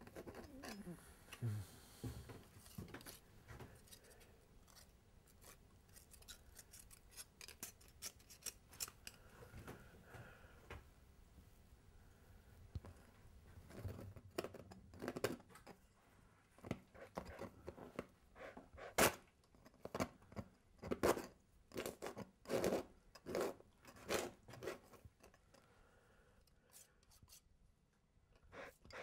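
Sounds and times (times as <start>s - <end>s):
painting tool scraping surface: 20.8s - 25.3s, 26.6s - 27.5s.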